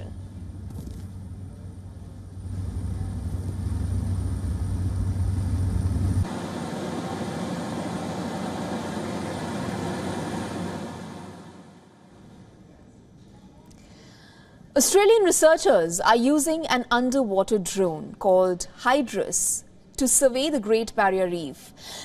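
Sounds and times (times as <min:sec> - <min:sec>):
aircraft cabin rushing noise: 0:00.0 - 0:11.7
aircraft engines droning: 0:00.0 - 0:12.9.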